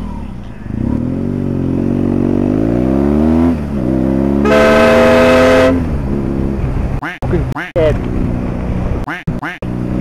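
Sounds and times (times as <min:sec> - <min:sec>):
motorcycle engine accelerating: 0:00.0 - 0:07.0
vehicle horn: 0:04.4 - 0:05.9.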